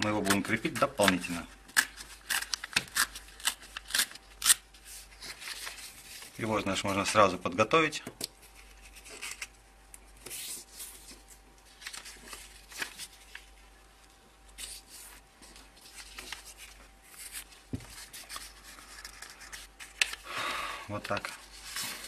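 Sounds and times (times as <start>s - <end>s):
paper rustling and crinkling: 0.0s - 7.4s, 8.4s - 13.6s, 14.5s - 20.2s, 20.9s - 22.0s.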